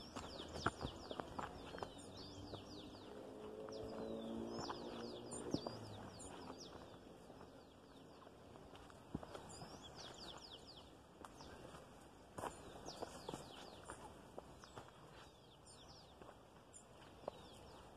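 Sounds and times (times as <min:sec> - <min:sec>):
footsteps on dirt path: 0:00.0 - 0:17.9
small birds chirping: 0:00.0 - 0:17.9.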